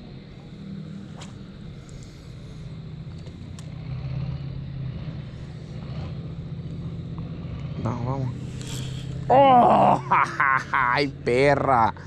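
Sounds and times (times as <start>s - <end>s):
low engine hum: 0.0s - 12.0s
faint clicks: 3.0s - 3.8s.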